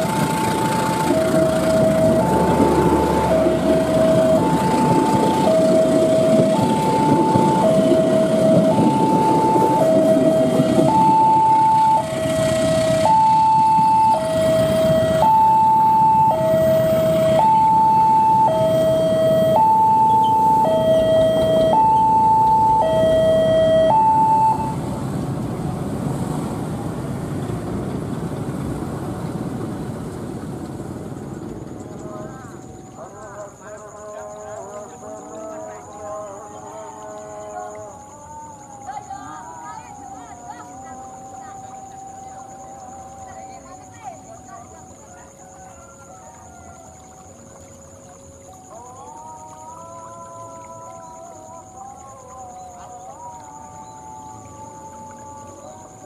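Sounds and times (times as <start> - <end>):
train carriages rumbling on rails: 0.0 - 15.2, 24.8 - 32.9
level crossing two-tone alarm: 0.0 - 24.8.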